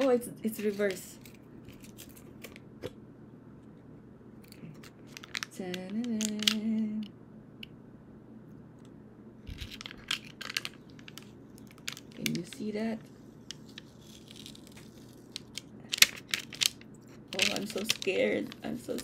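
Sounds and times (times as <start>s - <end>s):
paper backing crackling: 0.0s - 2.6s, 4.4s - 6.7s, 9.5s - 19.0s
person humming: 5.8s - 7.1s.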